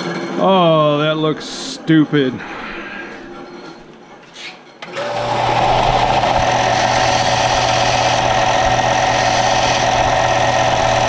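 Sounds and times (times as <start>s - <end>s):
sander motor humming: 4.9s - 11.0s.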